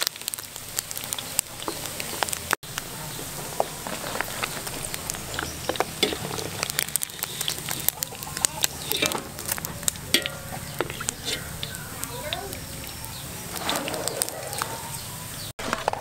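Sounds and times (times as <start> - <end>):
oil pops and crackles: 0.0 - 14.7
deep-frying sizzle: 0.0 - 15.6.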